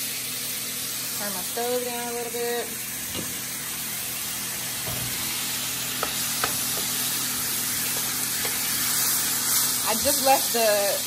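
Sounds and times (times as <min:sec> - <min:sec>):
garlic sizzling in frying pan: 0:00.0 - 0:11.0
wooden spoon tapping: 0:06.0 - 0:07.1, 0:07.9 - 0:08.7.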